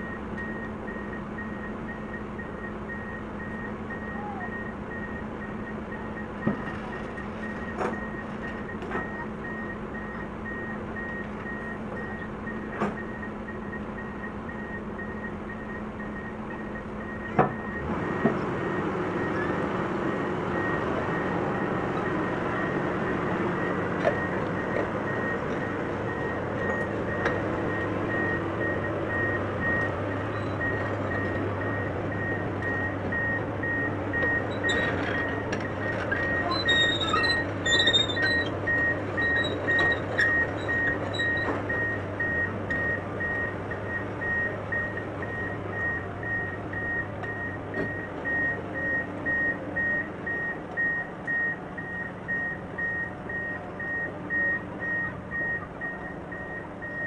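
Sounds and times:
warning alarm beeping: 0.0 - 8.2
diesel engine hum: 0.0 - 57.0
metallic clinks and squeaks: 36.2 - 38.6.

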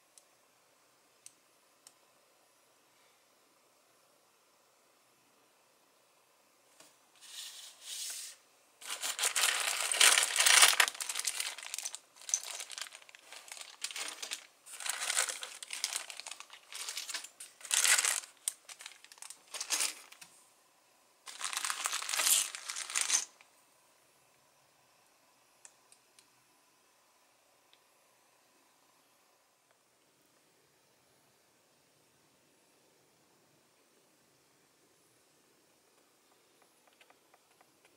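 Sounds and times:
plastic bags crinkling: 8.8 - 20.3, 21.3 - 23.4.

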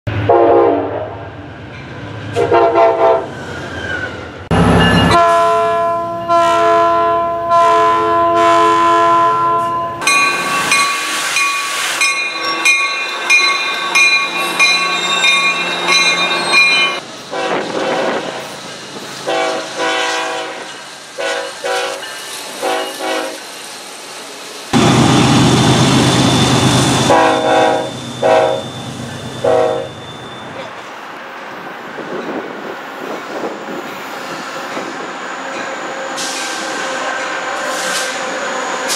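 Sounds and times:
train noise: 0.1 - 38.9
diesel locomotive horn blasts: 0.2 - 1.2, 2.4 - 3.3, 5.1 - 10.1, 17.3 - 18.5, 19.2 - 22.0, 22.6 - 23.4, 27.0 - 28.8, 29.4 - 30.0.

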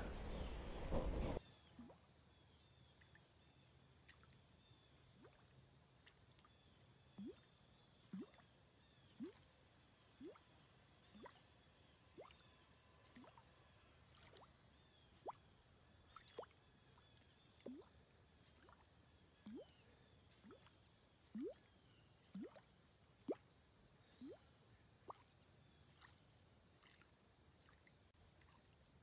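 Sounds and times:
insect chirring: 1.4 - 29.0
lure bloops on water: 7.2 - 7.5, 8.1 - 8.5, 9.2 - 9.4, 10.2 - 10.4, 11.2 - 11.4, 12.2 - 12.5, 13.2 - 13.4, 14.1 - 14.5, 16.1 - 17.9, 19.4 - 19.8, 20.4 - 21.7, 22.3 - 23.4, 24.2 - 25.3.

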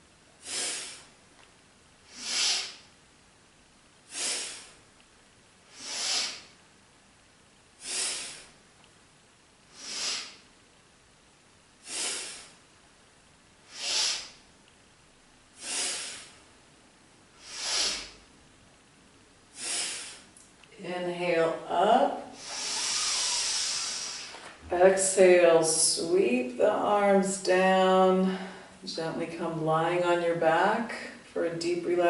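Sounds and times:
woman breathing hard: 0.4 - 1.2, 2.1 - 2.9, 4.1 - 4.9, 5.7 - 6.6, 7.8 - 8.6, 9.7 - 10.5, 11.8 - 12.6, 13.6 - 14.4, 15.6 - 16.5, 17.4 - 18.3, 19.5 - 20.4, 22.4 - 24.5.

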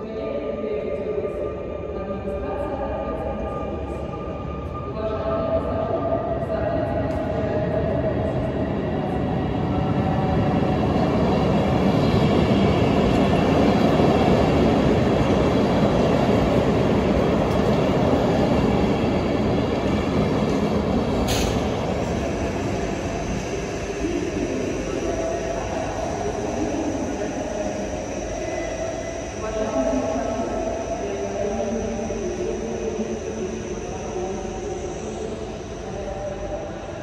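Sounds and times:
electric train passing: 7.0 - 37.0.

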